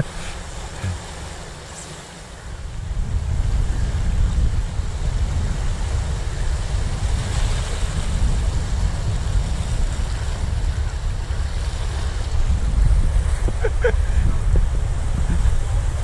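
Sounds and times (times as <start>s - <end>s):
small waves washing over rocks: 0.0s - 3.1s
wind rumbling on microphone: 0.0s - 16.0s.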